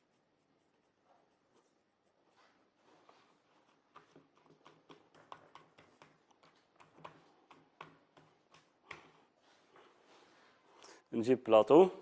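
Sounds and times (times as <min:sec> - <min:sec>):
fingers pressing dough taps: 0:03.9 - 0:09.2.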